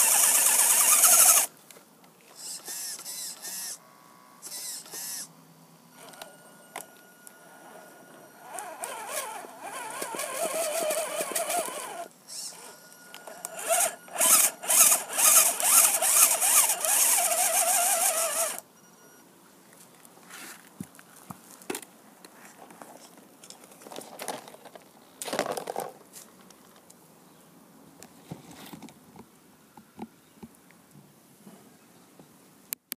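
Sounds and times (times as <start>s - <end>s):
electric motor whining: 0.0s - 1.5s, 7.6s - 12.7s, 13.4s - 18.6s.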